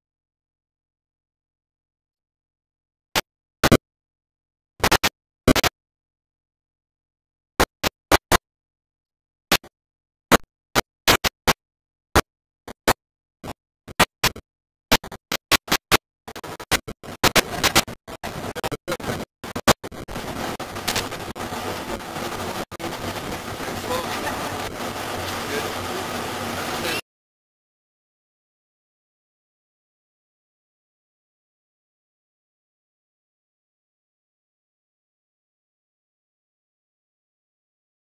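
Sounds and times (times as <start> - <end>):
digital dropout crackling clicks: 4.8 - 5.7, 13.9 - 25.8
garbled digital noise: 12.7 - 27.0.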